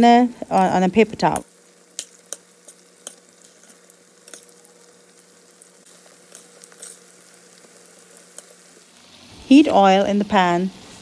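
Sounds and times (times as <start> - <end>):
batter deep-frying in oil: 0.0 - 11.0
metal spoon turning food: 0.5 - 8.9.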